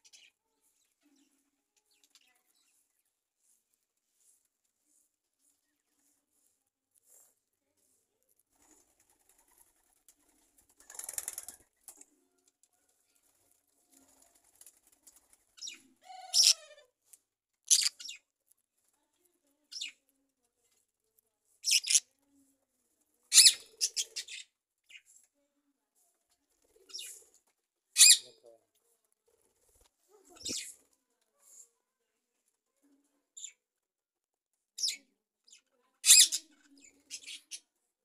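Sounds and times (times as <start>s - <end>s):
small birds chirping: 0.0s - 7.3s, 8.6s - 18.4s, 19.0s - 20.2s, 21.5s - 22.2s, 23.3s - 25.3s, 26.6s - 28.6s, 29.4s - 30.9s, 33.3s - 33.7s, 34.8s - 37.8s.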